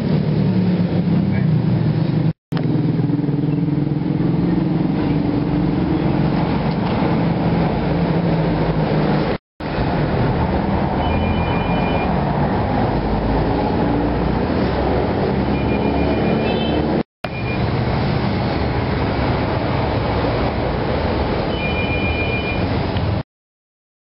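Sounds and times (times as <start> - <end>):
road traffic rumble: 0.0 - 23.2
faint high beeping: 11.0 - 12.1.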